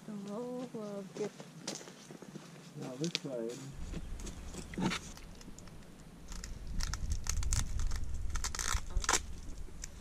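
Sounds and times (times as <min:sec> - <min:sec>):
wind rumble on microphone: 0:03.7 - 0:10.0.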